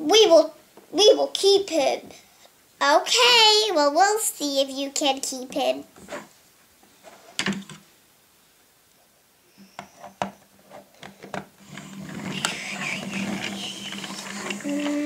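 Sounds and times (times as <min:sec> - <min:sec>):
plastic wheels rolling on wood: 0:10.7 - 0:15.0.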